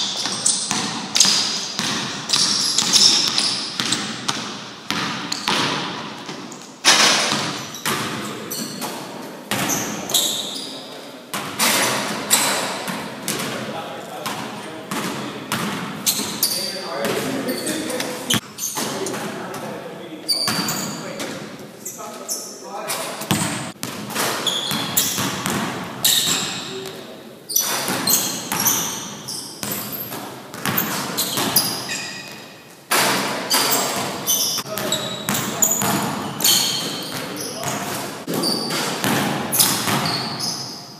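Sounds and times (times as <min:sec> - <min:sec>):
basketball bouncing on gym floor: 0:00.0 - 0:10.0, 0:14.2 - 0:17.4, 0:20.4 - 0:21.4, 0:23.2 - 0:27.0, 0:27.6 - 0:40.6
sneakers squeaking: 0:00.0 - 0:40.9.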